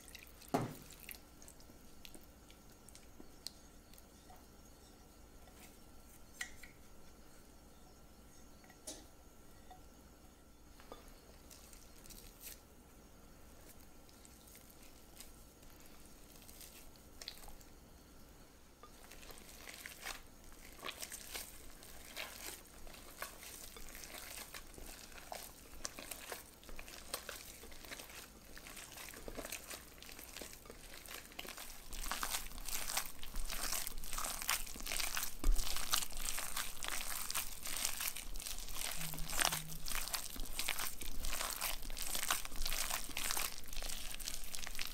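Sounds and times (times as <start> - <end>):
sticky dough squelching: 0.0 - 4.1, 13.6 - 17.7, 18.9 - 44.9
plastic gloves crinkling: 11.4 - 12.6, 13.5 - 17.6, 18.9 - 44.9.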